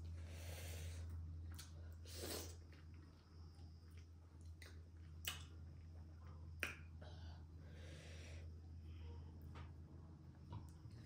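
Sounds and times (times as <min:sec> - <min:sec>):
low steady hum: 0:00.0 - 0:11.0
soft chewing: 0:01.0 - 0:06.5.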